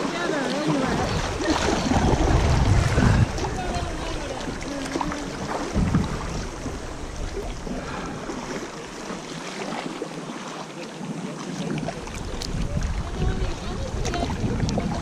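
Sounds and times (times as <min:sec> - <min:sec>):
river water rushing and splashing: 0:00.0 - 0:15.0
low thumps: 0:05.4 - 0:07.0.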